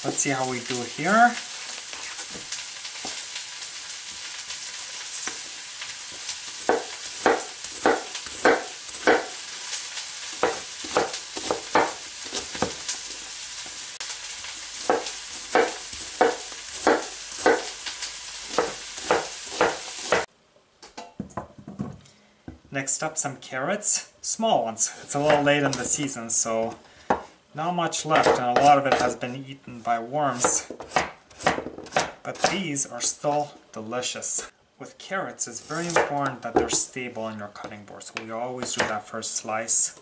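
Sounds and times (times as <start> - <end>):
constant hiss: 0.0 - 31.4, 32.3 - 40.0
knife chopping on cutting board: 6.7 - 9.4, 10.4 - 12.8, 14.8 - 17.7, 18.5 - 20.3, 30.4 - 32.6.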